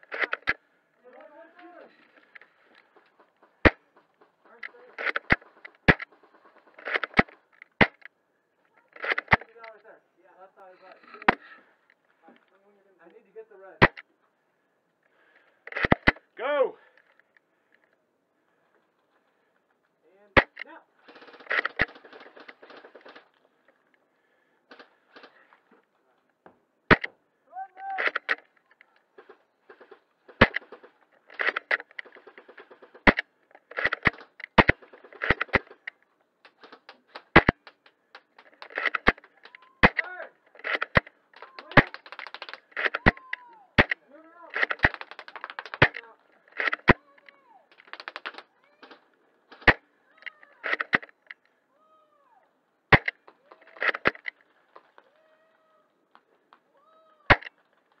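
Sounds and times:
rapid clicking bursts: 2.3s - 8.1s, 20.4s - 23.4s, 24.7s - 25.4s, 29.2s - 43.2s, 43.8s - 47.0s, 47.7s - 49.8s
airsoft gun cracks: 20.4s - 23.3s, 29.2s - 43.2s, 52.9s - 54.4s, 57.3s - 57.6s
airsoft gun shots: 29.2s - 33.2s.

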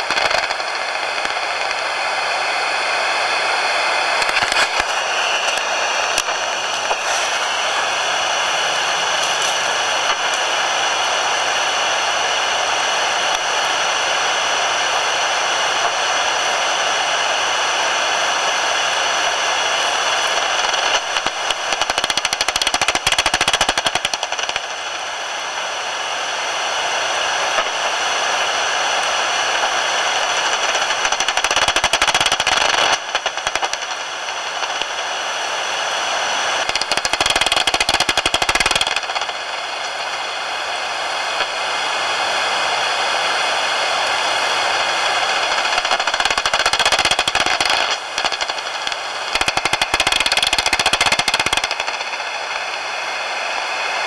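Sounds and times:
steady hiss: 0.0s - 54.0s.

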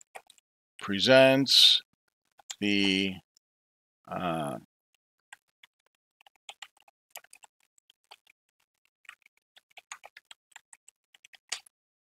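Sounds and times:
typing on a keyboard: 0.0s - 0.4s, 5.3s - 11.7s.

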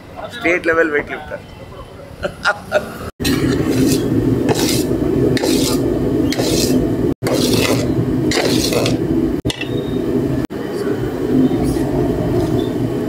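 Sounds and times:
low rumble: 3.2s - 13.0s
puffed rice rustling in metal bowl: 3.6s - 5.8s, 6.4s - 9.0s.

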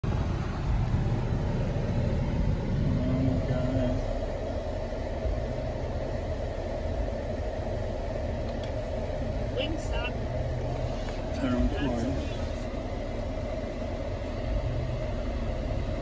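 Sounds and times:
car engine idling: 0.0s - 16.0s.

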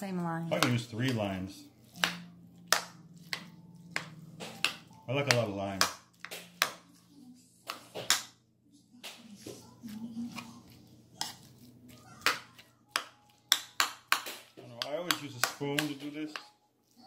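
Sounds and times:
soft mushy scrapes: 0.4s - 6.2s, 9.3s - 13.5s.

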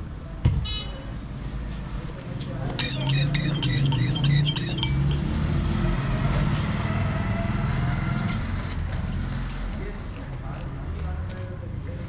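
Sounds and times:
street traffic: 0.0s - 12.0s
electronic chime melody: 2.8s - 5.3s.

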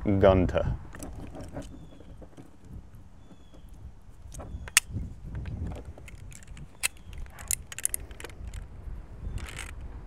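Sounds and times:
metal tools clicking and clinking: 6.0s - 8.6s, 9.4s - 9.8s.

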